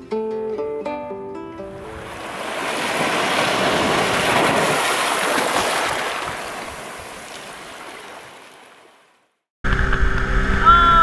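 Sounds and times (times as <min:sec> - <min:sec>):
wave washing up on shore: 0:01.7 - 0:09.1.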